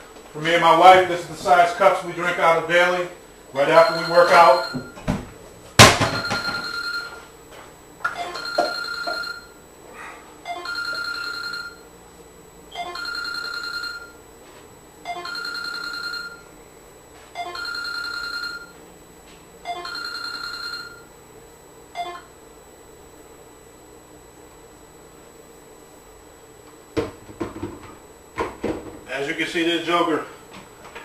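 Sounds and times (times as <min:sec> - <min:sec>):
telephone ringing: 0:03.6 - 0:05.0, 0:06.0 - 0:07.3, 0:08.0 - 0:09.6, 0:10.4 - 0:11.9, 0:12.7 - 0:14.2, 0:15.0 - 0:16.5, 0:17.3 - 0:18.8, 0:19.6 - 0:21.2, 0:21.9 - 0:22.3.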